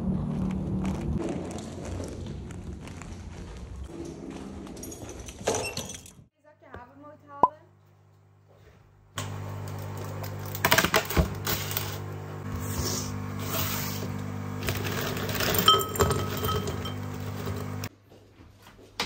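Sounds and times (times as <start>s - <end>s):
dishes and cutlery clinking: 15.4s - 17.2s.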